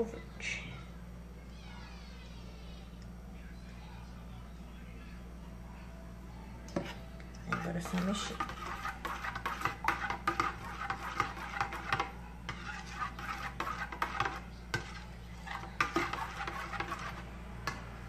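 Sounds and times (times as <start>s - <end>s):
spoon stirring in metal bowl: 6.7s - 18.0s.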